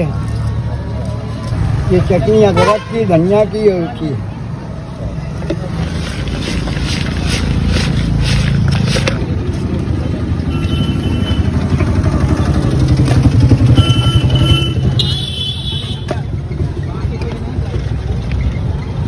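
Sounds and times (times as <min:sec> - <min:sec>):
vehicle engine rumbling: 0:00.0 - 0:19.0
spoon scraping in plastic bucket: 0:05.4 - 0:09.7.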